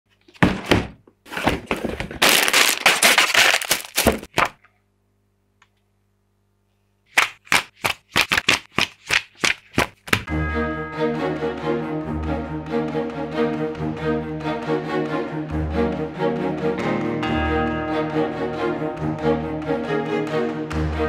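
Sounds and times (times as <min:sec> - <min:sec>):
cardboard box crinkling: 0:01.6 - 0:04.3
plastic bags rustling: 0:01.9 - 0:04.3
music: 0:10.3 - 0:21.0.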